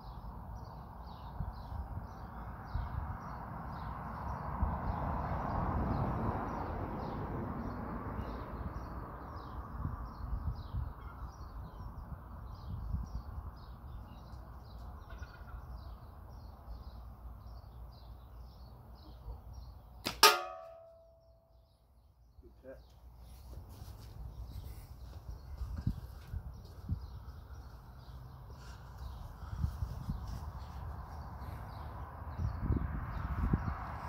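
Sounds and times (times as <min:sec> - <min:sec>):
metal target ringing hit: 0:20.1 - 0:21.4.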